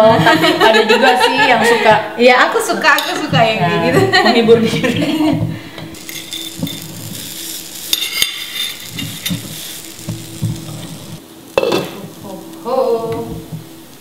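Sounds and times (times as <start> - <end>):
batter sizzling in pan: 2.6 - 14.0
metal spoon scraping saucepan: 5.9 - 11.0.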